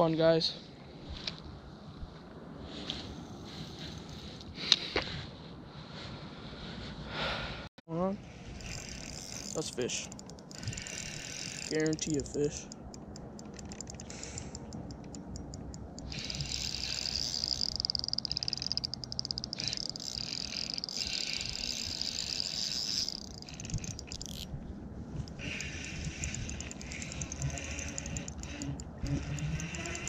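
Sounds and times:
fishing reel whirring: 8.4s - 24.5s, 25.2s - 30.0s.

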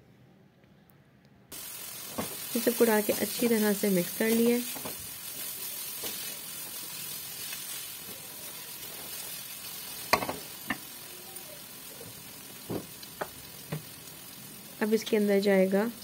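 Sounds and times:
vegetables sizzling in oil: 1.5s - 16.0s
spatula knocking on wok: 10.1s - 10.9s.

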